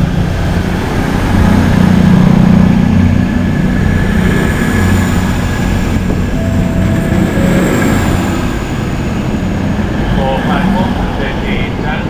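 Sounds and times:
diesel train engines droning: 0:00.0 - 0:12.0
faint high tones: 0:06.4 - 0:09.7.

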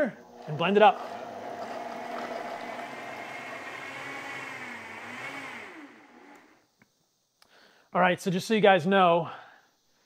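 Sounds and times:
blender motor whining: 0:00.3 - 0:06.6.

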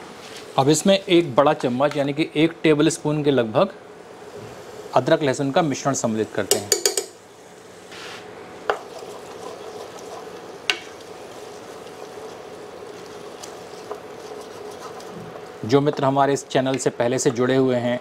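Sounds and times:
oil sizzling: 0:04.0 - 0:17.3
spatula knocking on pot: 0:06.5 - 0:07.2, 0:10.7 - 0:10.9
spatula scraping a pot: 0:08.7 - 0:15.6.

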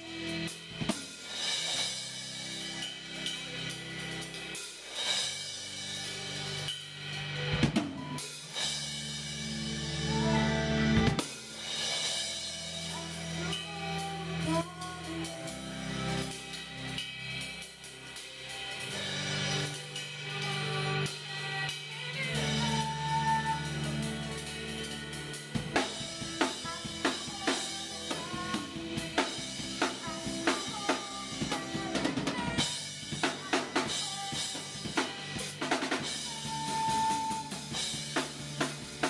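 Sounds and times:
live band playing: 0:00.0 - 0:39.0
woman singing: 0:12.9 - 0:16.5, 0:19.6 - 0:25.0, 0:25.8 - 0:37.6.

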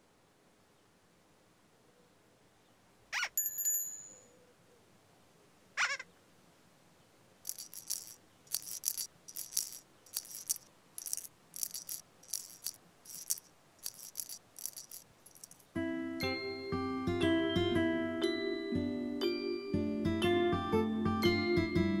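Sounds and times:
shaker rattling in short bursts: 0:07.4 - 0:15.8.

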